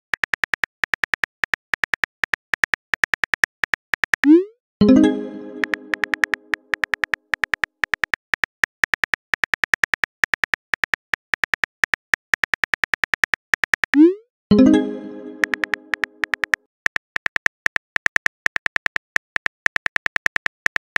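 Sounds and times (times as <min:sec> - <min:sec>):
rapid keyboard typing clicks: 0:00.2 - 0:04.3, 0:05.3 - 0:14.0, 0:15.0 - 0:20.9
message chime: 0:04.8 - 0:06.5, 0:14.5 - 0:16.3.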